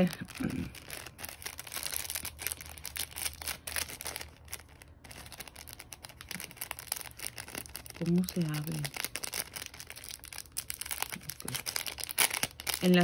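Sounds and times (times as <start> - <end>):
packaging rustling and crinkling: 0.0 - 13.0.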